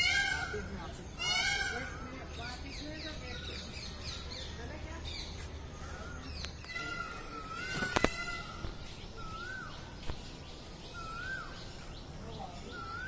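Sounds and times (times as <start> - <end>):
bird whistled call: 6.7 - 10.0, 10.8 - 11.9, 12.6 - 13.0.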